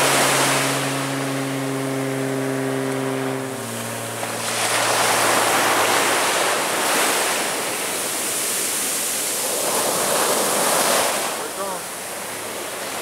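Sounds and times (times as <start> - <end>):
low hum: 0.0 - 8.9
surf washing on beach: 0.0 - 13.0.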